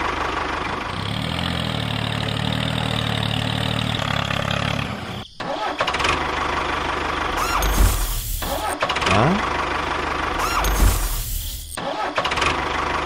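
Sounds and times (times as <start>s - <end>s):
tractor engine idling: 0.0s - 13.0s
squeaky rising and falling glides: 7.2s - 9.3s, 10.2s - 12.3s.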